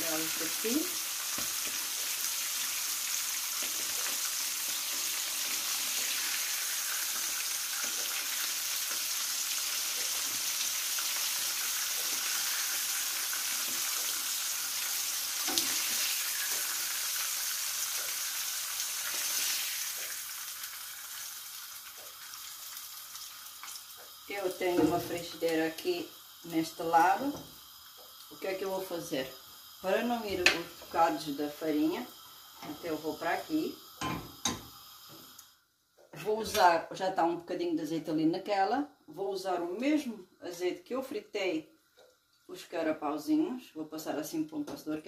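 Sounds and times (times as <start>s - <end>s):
fish sizzling in frying pan: 0.0s - 35.6s.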